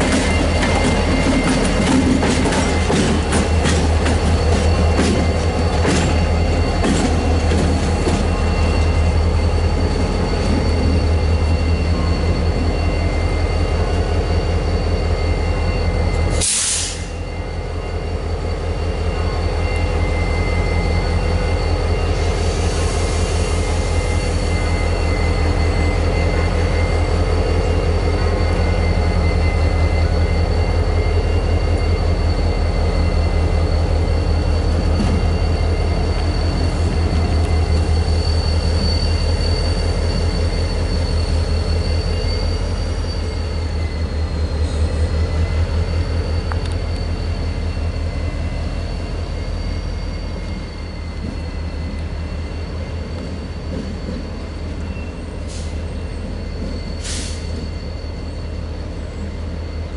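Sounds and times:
locomotive engine hum: 0:00.0 - 0:59.9
brief air hiss: 0:16.3 - 0:17.2, 0:57.0 - 0:57.5.

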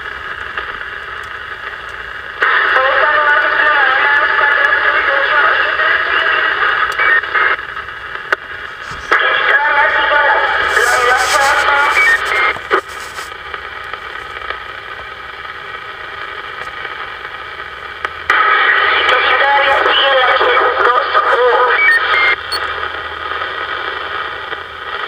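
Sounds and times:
radio static: 0:00.0 - 0:25.0
distorted radio voices: 0:01.6 - 0:14.5, 0:18.2 - 0:25.0
harsh burst of radio noise: 0:08.5 - 0:13.4, 0:18.3 - 0:22.6.

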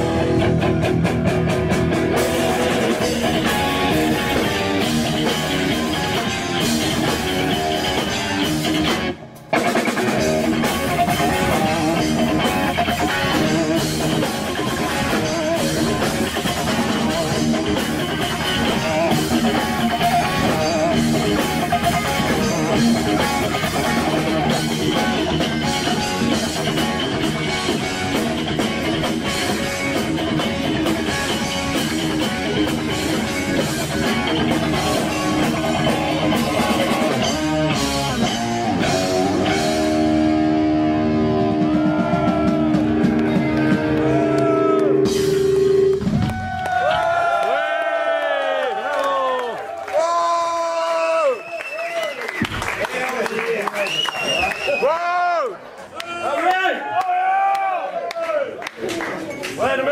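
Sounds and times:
drum kit: 0:00.0 - 0:47.3
electric guitar: 0:00.0 - 0:47.3.

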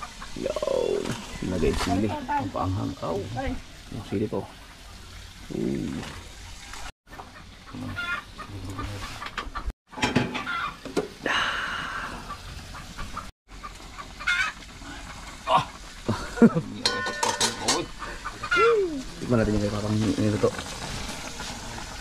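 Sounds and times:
chickens clucking: 0:07.1 - 0:10.9, 0:11.9 - 0:15.1, 0:17.1 - 0:18.7.

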